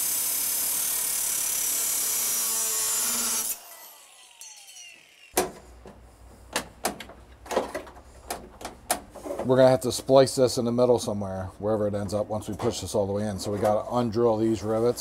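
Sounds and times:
angle grinder grinding metal: 0:00.0 - 0:05.4.

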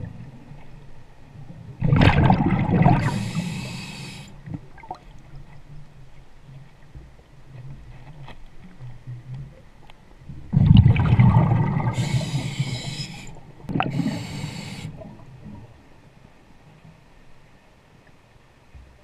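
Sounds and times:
rush of exhaled bubbles: 0:01.8 - 0:05.0, 0:10.5 - 0:15.3
diver breathing through regulator: 0:02.9 - 0:04.4, 0:11.8 - 0:15.2
high regulator hiss: 0:03.0 - 0:04.3, 0:12.0 - 0:15.0.

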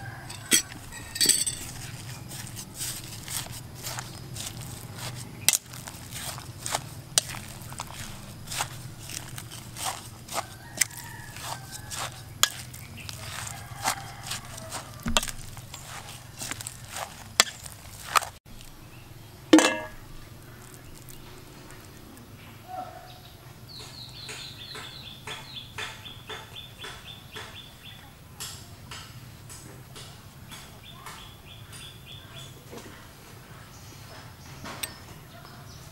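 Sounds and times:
hands mixing in metal bowl: 0:00.0 - 0:18.4.

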